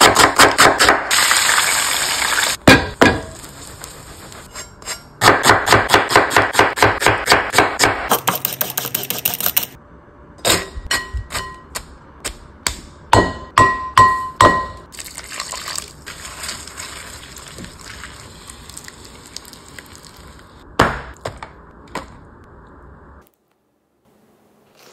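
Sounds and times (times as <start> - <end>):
quiet mixing of coleslaw: 15.0 - 20.6.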